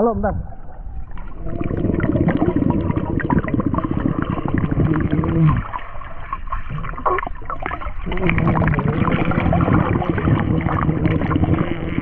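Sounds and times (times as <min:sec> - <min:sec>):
low underwater rumble: 0:00.0 - 0:12.0
underwater bubbling water: 0:00.4 - 0:12.0.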